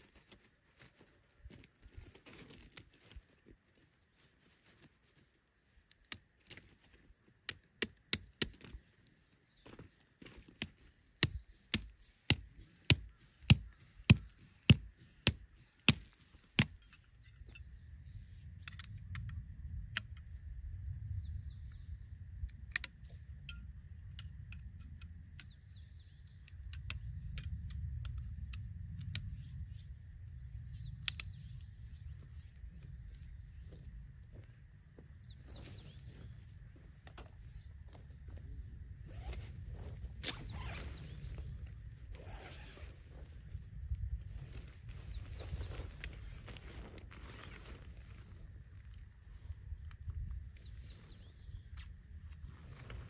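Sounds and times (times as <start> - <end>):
tent stake hammered into gravel: 7.4 - 8.8, 10.5 - 17.2.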